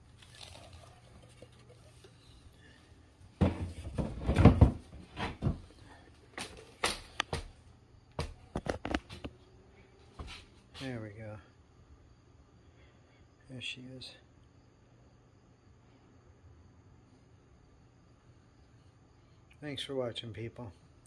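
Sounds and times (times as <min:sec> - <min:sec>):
objects knocking and scraping: 0:03.4 - 0:07.5, 0:08.2 - 0:09.3.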